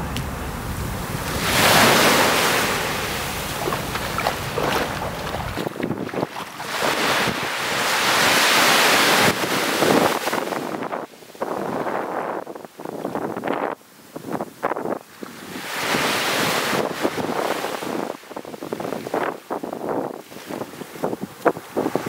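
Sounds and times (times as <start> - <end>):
wind rumble on microphone: 0.0 - 22.0
waves breaking on sandy beach: 0.6 - 11.8, 15.1 - 22.0.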